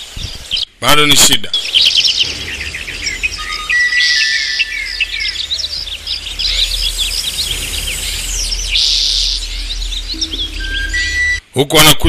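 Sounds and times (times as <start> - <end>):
birds chirping in chorus: 1.5 - 11.4
short high buzz: 2.2 - 11.5.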